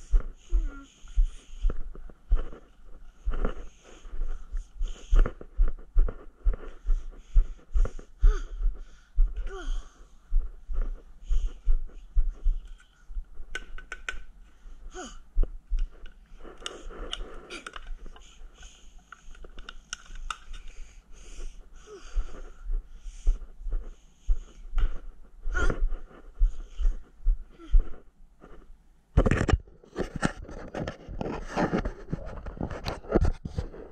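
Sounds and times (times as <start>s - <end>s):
wheezy breathing: 0.0s - 13.1s, 14.5s - 28.6s
handling clicks and rustles: 15.7s - 20.9s.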